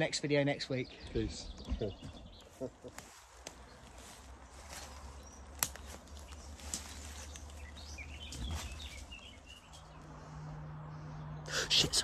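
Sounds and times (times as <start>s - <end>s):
bird chirps: 0.0s - 10.4s
snaps and rustles: 4.7s - 9.8s.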